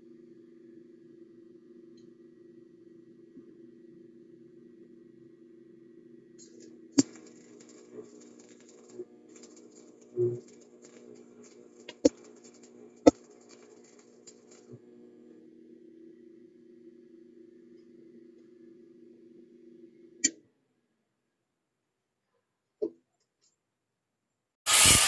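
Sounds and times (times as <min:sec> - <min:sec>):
steady low hum: 0:06.2 - 0:20.2
welding arc crackling: 0:06.4 - 0:15.0, 0:24.7 - 0:25.0.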